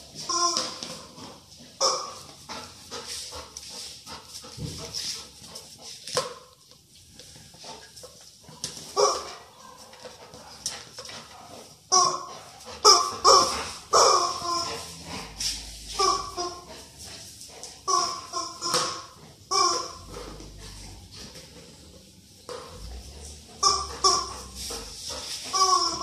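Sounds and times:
rubber chicken toy squawking: 17.9 - 20.1, 23.6 - 24.8, 25.4 - 26.0.

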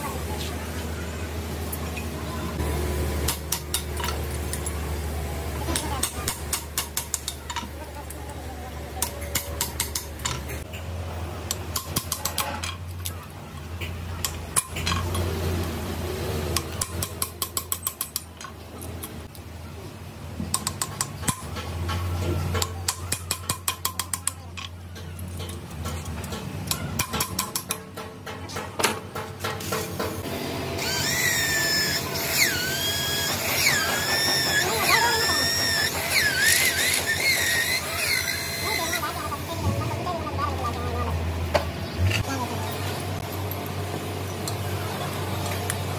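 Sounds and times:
metal tools clicking and clinking: 11.5 - 15.3, 16.5 - 19.5, 20.5 - 29.8
metal-cutting tool squealing: 30.8 - 39.2.

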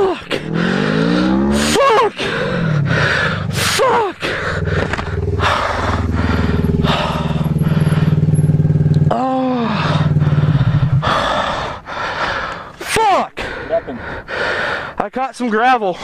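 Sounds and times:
motorcycle engine running: 0.0 - 11.5
short pitch sweeps: 2.4 - 9.1.

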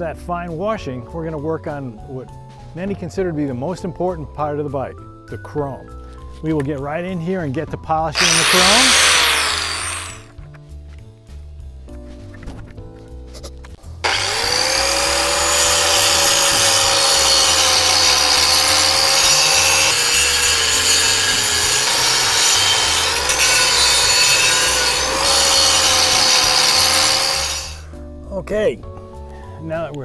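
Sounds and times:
power tool grinding metal whine: 8.1 - 10.3, 14.0 - 27.9.

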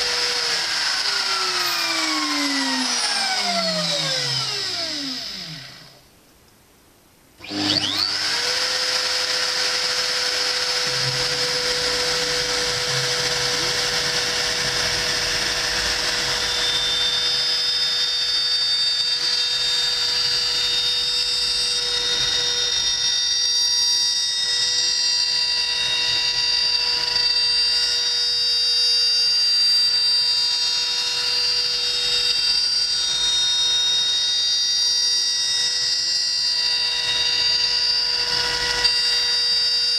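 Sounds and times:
bit milling hardwood: 0.0 - 6.0, 7.4 - 21.0
router spindle whine: 0.0 - 6.1, 7.4 - 39.9.

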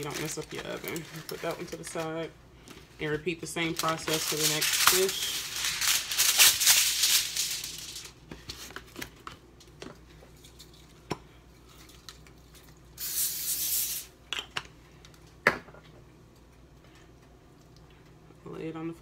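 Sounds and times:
aluminium foil crinkling: 0.0 - 2.3, 3.0 - 11.0
aerosol spray hiss: 13.0 - 14.1.

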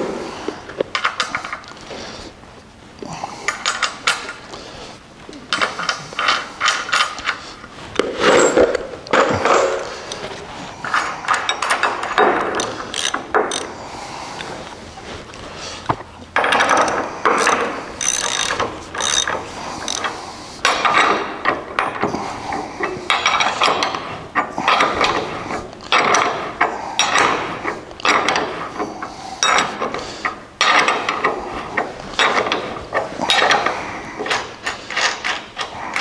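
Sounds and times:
ratchet wrench clicking: 12.6 - 13.7, 16.7 - 20.1.

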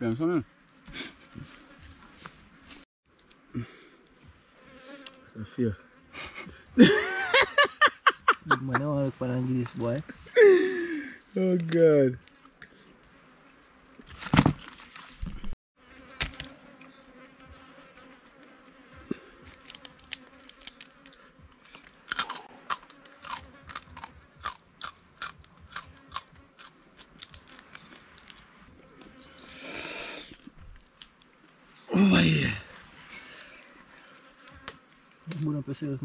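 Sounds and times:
faint insect buzzing: 0.0 - 7.3, 15.8 - 36.0
crunchy chewing: 19.2 - 29.5, 30.3 - 31.9
crayfish shells cracking: 19.6 - 28.5.

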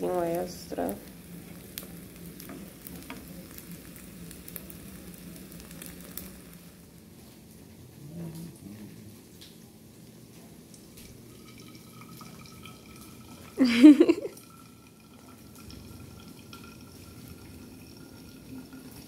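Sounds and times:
coffee trickling into flask: 11.1 - 19.0.

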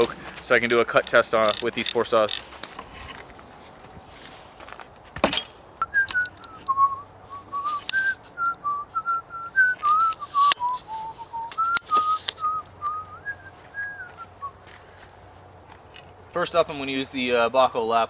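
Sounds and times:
sharp clicks and crunches: 0.0 - 4.0, 4.6 - 6.8, 7.5 - 14.2
person whistling a tune: 5.8 - 14.6.

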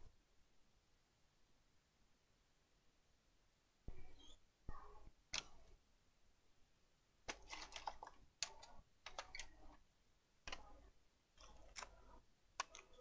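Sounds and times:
small parts and packaging rustling: 7.3 - 9.5.

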